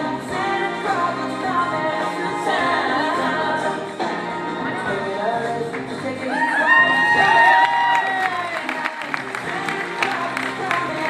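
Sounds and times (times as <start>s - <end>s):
crowd cheering and whooping: 6.2s - 8.9s.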